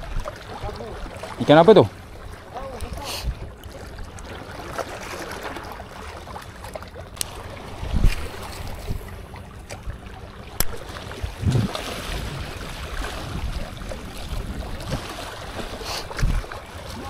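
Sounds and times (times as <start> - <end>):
waves lapping against boulders: 0.0 - 17.0
wind buffeting microphone: 7.7 - 9.2, 11.2 - 17.0.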